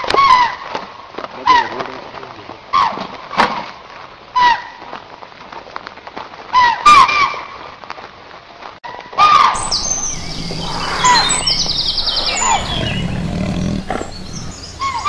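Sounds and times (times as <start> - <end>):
faint forest background hiss: 9.5 - 15.0
honking animal calls: 9.5 - 15.0.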